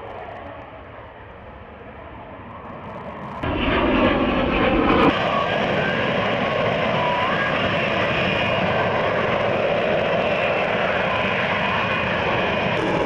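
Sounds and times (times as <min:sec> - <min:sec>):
jet engine roaring: 0:00.0 - 0:13.0.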